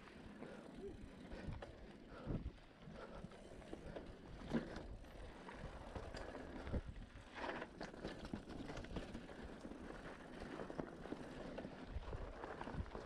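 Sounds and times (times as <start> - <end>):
bike tyre noise on dirt: 0.0 - 13.0
bike knocking and rattling: 3.4 - 13.0.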